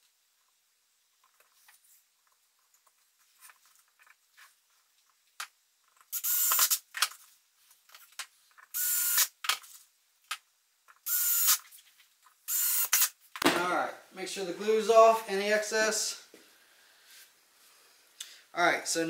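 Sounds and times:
screw gun whining: 6.1s - 6.8s, 8.6s - 9.3s, 11.0s - 11.6s, 12.5s - 13.1s.

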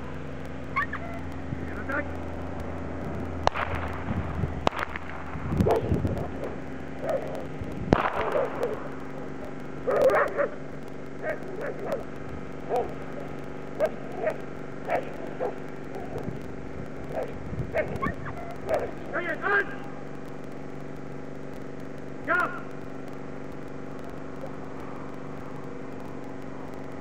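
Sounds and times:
dog barking: 9.9s - 10.6s.

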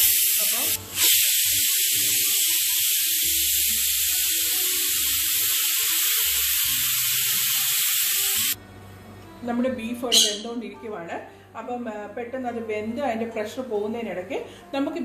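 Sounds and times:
pressure cooker hissing steam: 0.0s - 8.6s.

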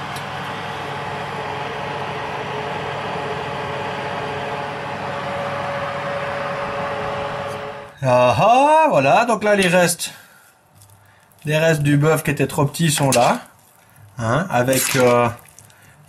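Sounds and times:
electric oven humming: 0.0s - 8.7s.

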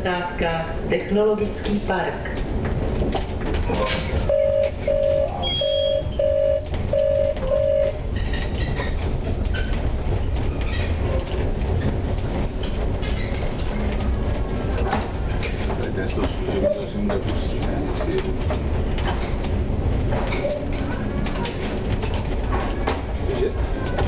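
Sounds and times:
tram running rumble: 0.0s - 24.0s
wheels clicking over track joints: 1.4s - 24.0s
short electronic beeps: 4.3s - 8.0s.

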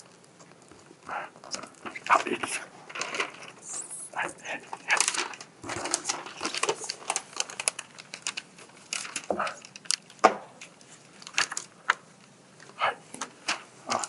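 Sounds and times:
paper sheet rustling: 1.7s - 12.1s.

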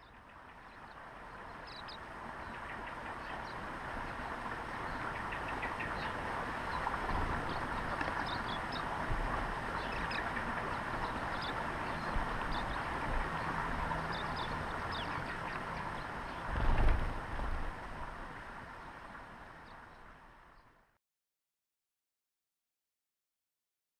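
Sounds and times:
birds chirping: 0.0s - 16.5s
steady background hiss: 0.0s - 20.9s.

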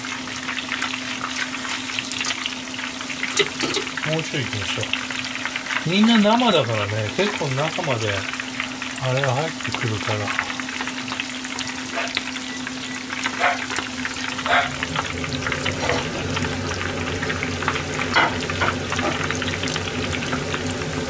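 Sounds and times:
batter deep-frying in hot oil: 0.0s - 21.0s
steady low hum: 6.8s - 21.0s.

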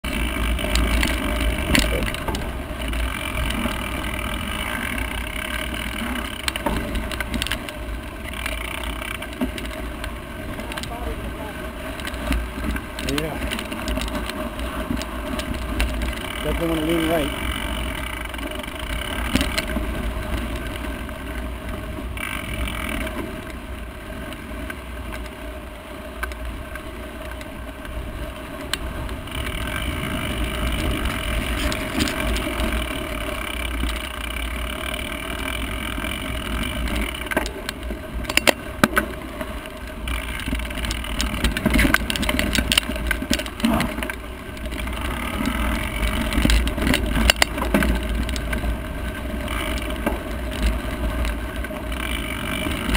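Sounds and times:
bike frame and chain rattling: 0.0s - 52.9s
tyres crunching over dirt: 0.0s - 52.9s.

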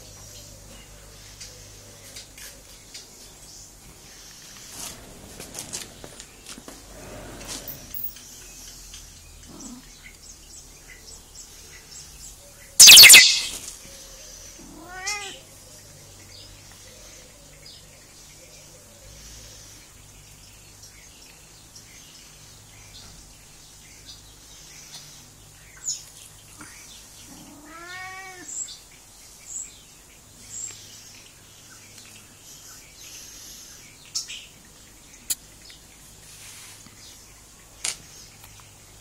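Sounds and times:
sharp clicks: 12.8s - 13.6s
cat meowing: 14.6s - 15.4s, 27.5s - 28.5s.

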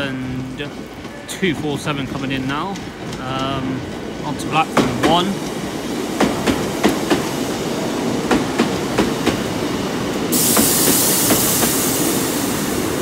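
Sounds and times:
train wheels clicking over joints: 0.0s - 13.0s
steady high hiss: 10.2s - 13.0s.

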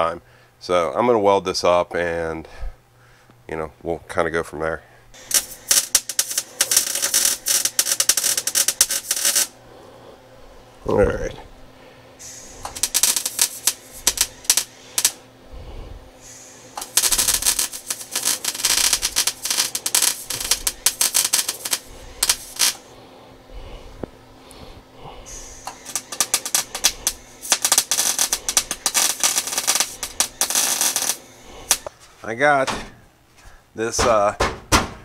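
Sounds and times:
wire-feed welder crackling: 5.2s - 9.6s, 12.2s - 15.4s, 16.2s - 23.0s, 23.6s - 32.7s.

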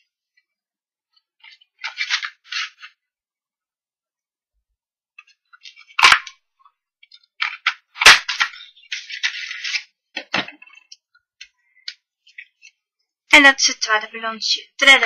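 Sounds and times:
paper rustling: 1.1s - 3.0s, 5.2s - 6.4s, 7.0s - 11.1s, 11.8s - 12.8s.

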